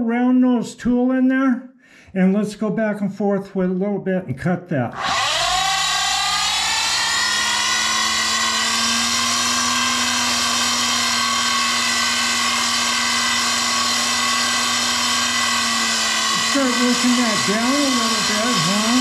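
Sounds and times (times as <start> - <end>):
lathe motor high whine: 5.0 - 19.0.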